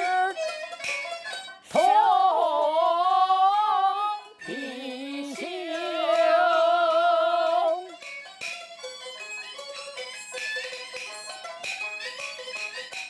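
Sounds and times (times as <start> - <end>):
woman singing wordless notes: 0.0 - 0.4, 1.7 - 8.0
musical accompaniment: 0.0 - 13.0.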